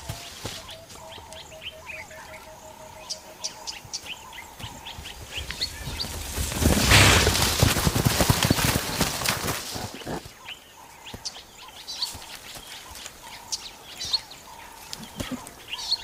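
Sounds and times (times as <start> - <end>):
birds chirping: 0.0 - 16.0
hippo crashing through brush: 5.8 - 10.2.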